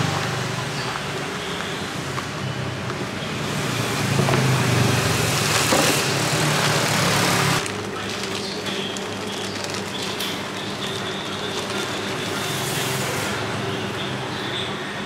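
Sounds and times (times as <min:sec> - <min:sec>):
passing road traffic: 0:00.0 - 0:07.6
plastic bag crinkling: 0:05.4 - 0:12.7.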